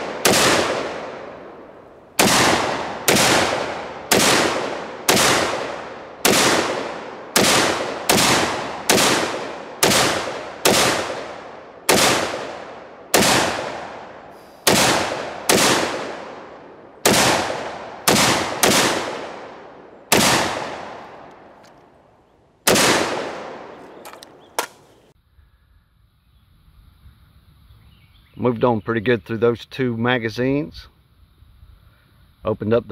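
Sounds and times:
rifle shots echoing: 0.0 - 21.9, 22.6 - 25.1.

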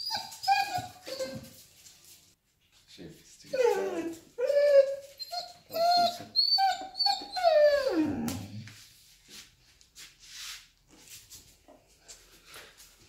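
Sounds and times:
dog whining and howling: 3.6 - 8.6.

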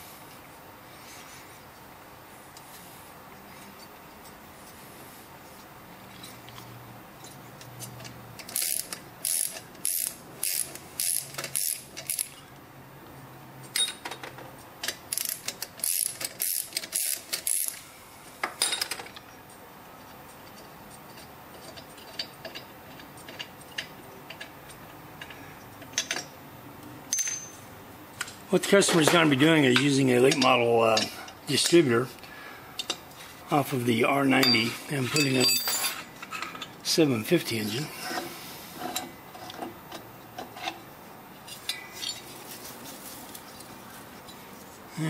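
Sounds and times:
ratchet wrench clicking: 8.4 - 12.4, 15.1 - 17.8.

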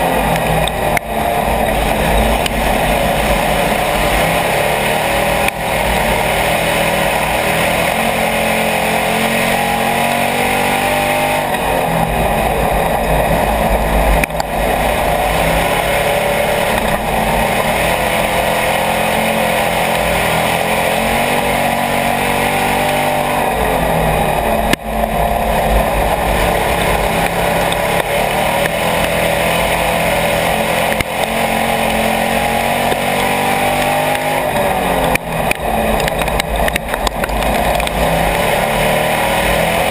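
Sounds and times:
race car engine at speed: 0.0 - 39.9.

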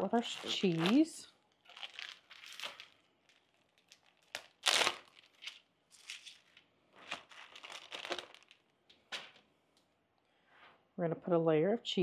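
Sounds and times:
plastic packaging crinkling and tearing: 0.0 - 8.7.

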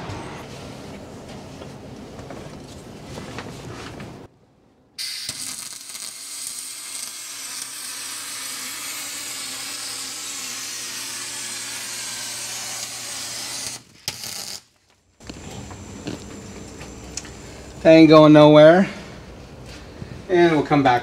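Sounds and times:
welding arc crackling: 5.0 - 18.1
faint welder hum: 5.0 - 19.9.

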